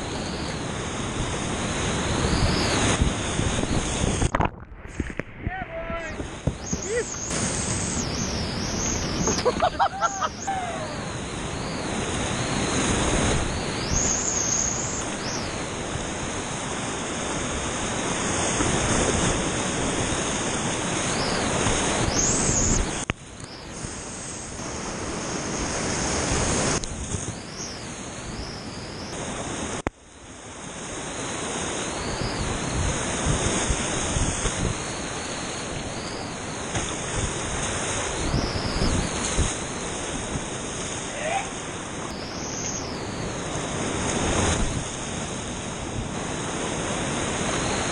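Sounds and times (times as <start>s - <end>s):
whitewater rapids rushing: 5.7s - 23.0s, 31.3s - 47.9s.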